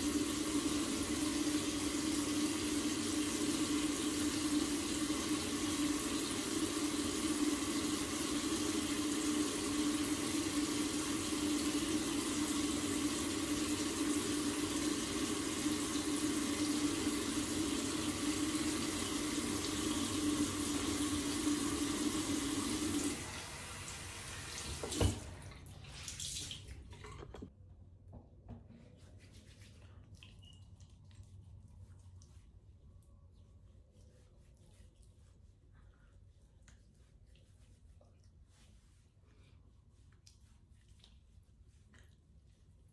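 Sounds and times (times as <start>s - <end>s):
tap running into sink: 24.6s - 25.4s.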